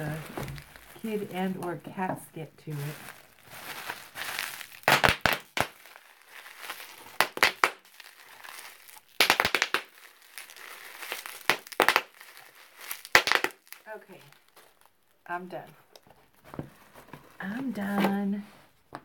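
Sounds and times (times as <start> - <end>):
bubble wrap popping: 0.0 - 15.2
plastic crinkling: 0.0 - 15.2.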